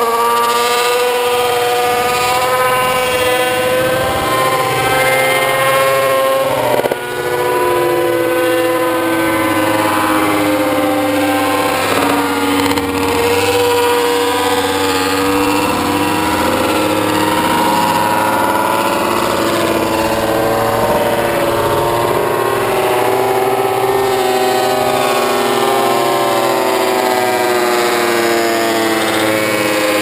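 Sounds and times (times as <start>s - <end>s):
racing motorcycle engines revving: 0.0s - 30.0s.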